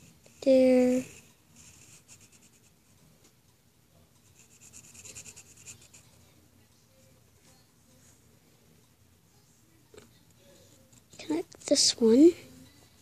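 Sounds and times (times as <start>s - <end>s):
pencil scratching on paper: 0.0s - 2.9s, 4.2s - 6.2s.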